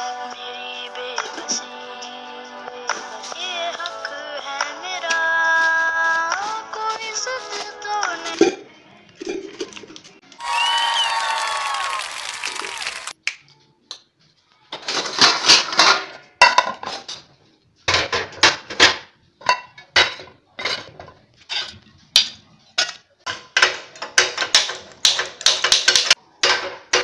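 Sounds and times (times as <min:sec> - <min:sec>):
metal pots and pans clanging: 0:14.7 - 0:17.3, 0:17.9 - 0:27.0.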